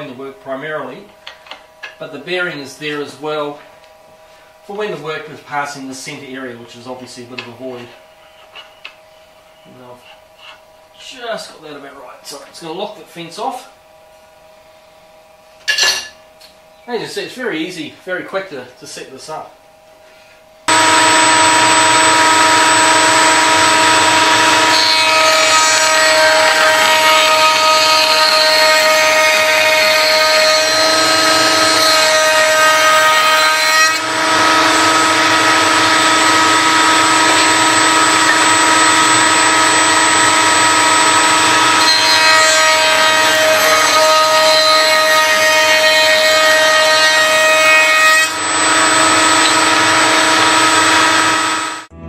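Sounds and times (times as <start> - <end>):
router whining cutting wood: 20.7 - 51.9.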